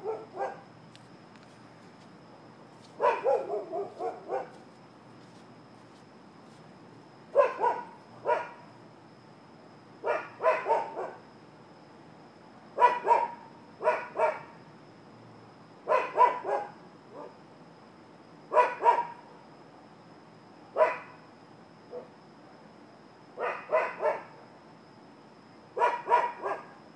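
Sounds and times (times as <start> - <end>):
dog barking: 0.0 - 0.6, 3.0 - 4.6, 7.4 - 8.6, 10.0 - 11.2, 12.8 - 14.5, 15.9 - 17.3, 18.5 - 19.2, 20.8 - 21.2, 23.4 - 24.3, 25.8 - 26.8.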